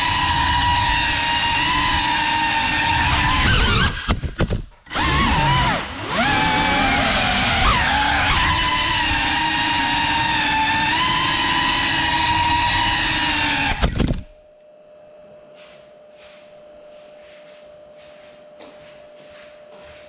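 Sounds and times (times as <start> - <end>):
drone propellers whining: 4.9 - 14.2.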